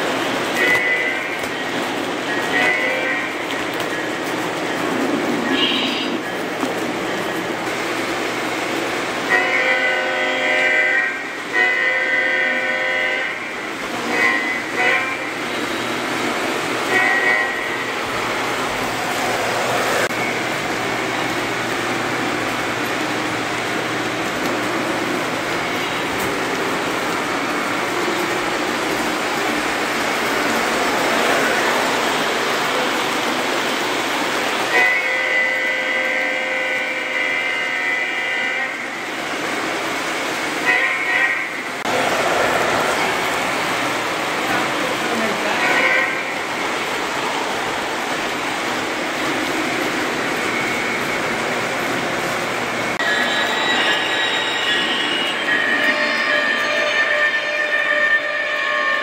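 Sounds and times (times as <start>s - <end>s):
model train clattering on track: 0.0s - 5.2s
model train running on track: 0.0s - 59.0s
model train horn blasts: 0.6s - 1.4s, 2.5s - 3.4s, 9.3s - 15.4s, 16.9s - 17.8s, 34.7s - 38.9s, 40.6s - 41.6s, 45.6s - 46.3s, 53.0s - 59.0s.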